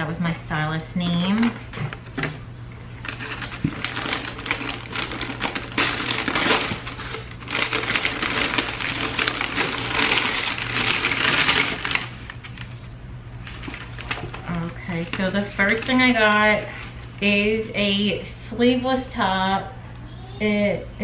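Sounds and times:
wrapping paper crinkling: 0:02.9 - 0:17.4.

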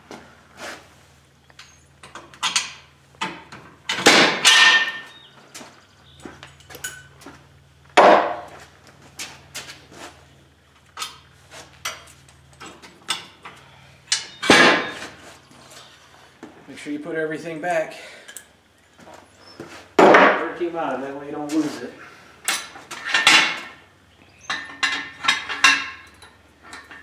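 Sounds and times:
loud metallic clangs: 0:03.9 - 0:05.2, 0:14.1 - 0:15.1
metal tools clanking: 0:06.0 - 0:07.2, 0:11.8 - 0:16.1, 0:22.4 - 0:23.8, 0:24.4 - 0:27.0.

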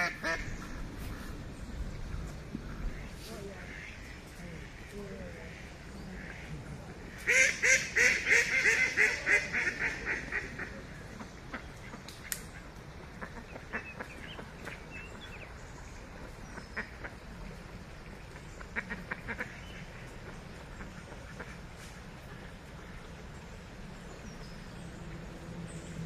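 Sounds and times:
waterfowl calling rapidly: 0:07.3 - 0:10.7.

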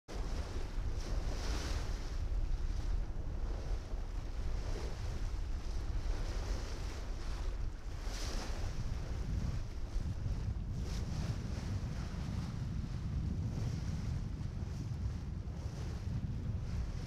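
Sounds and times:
low steady rumble: 0:00.1 - 0:17.0
wind buffeting microphone: 0:00.1 - 0:17.0
water rushing past hull: 0:00.2 - 0:17.0.

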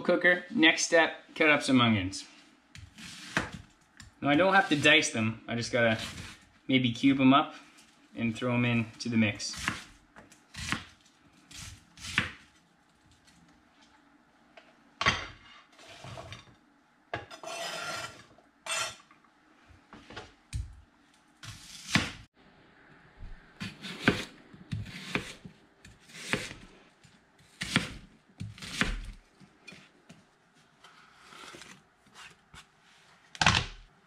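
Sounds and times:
knife scraping cutting board: 0:02.8 - 0:03.6, 0:04.5 - 0:05.0, 0:05.9 - 0:06.5, 0:15.4 - 0:16.5, 0:17.2 - 0:19.1, 0:21.4 - 0:22.2, 0:23.6 - 0:26.7, 0:30.8 - 0:32.7.

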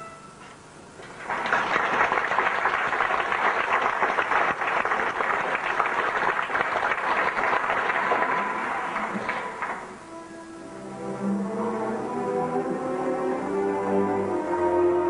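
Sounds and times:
audience applauding: 0:01.0 - 0:10.0.

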